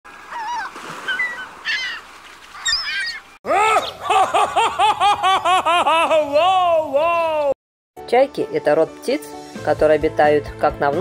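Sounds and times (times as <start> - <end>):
gull calling: 0.3 - 5.5.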